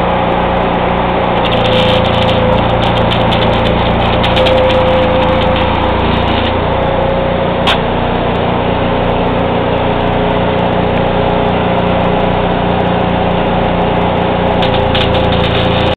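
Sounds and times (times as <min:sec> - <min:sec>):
welding machine engine droning: 0:00.0 - 0:15.9
sharp click: 0:07.6 - 0:07.9.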